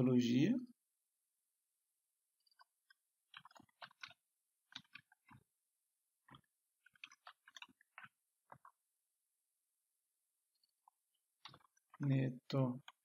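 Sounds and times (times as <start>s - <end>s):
computer keyboard typing: 3.3s - 5.4s.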